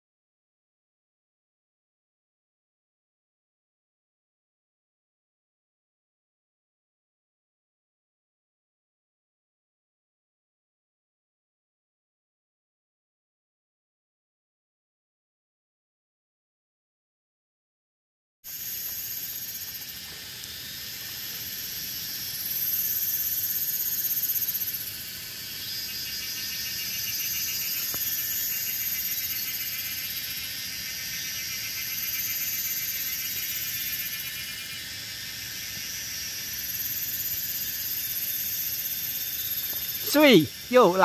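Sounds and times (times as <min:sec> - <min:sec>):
insect chorus: 0:18.5 - 0:41.0.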